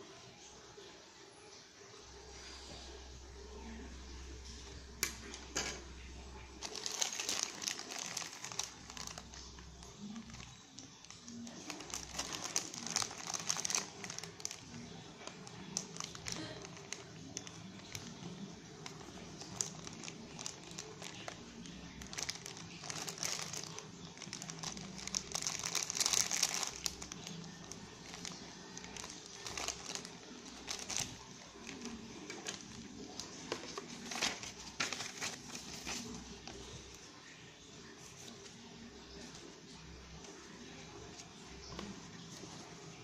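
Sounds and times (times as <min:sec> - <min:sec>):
plastic bags crinkling: 0:05.0 - 0:37.4.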